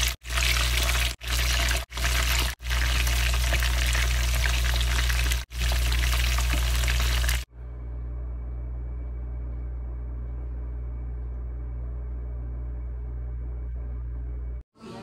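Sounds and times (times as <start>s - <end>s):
meat frying in hot oil: 0.0s - 7.5s
quiet low hum: 7.5s - 15.0s.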